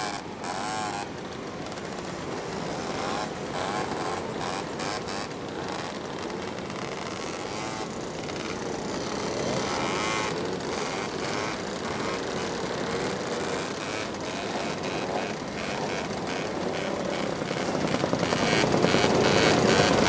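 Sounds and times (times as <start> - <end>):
moped engines revving past: 0.0 - 20.0.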